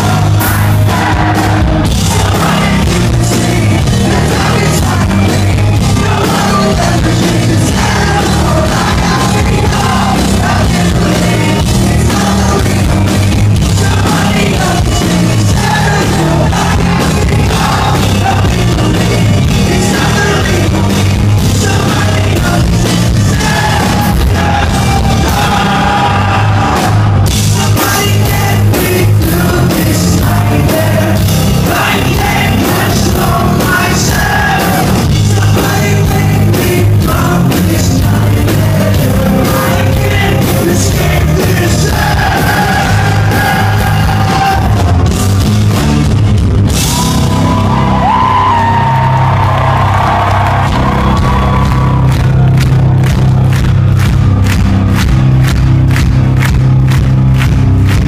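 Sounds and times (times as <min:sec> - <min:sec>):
live hard rock band: 0:00.0 - 0:58.0
man singing and shouting: 0:02.1 - 0:26.8, 0:27.5 - 0:45.0.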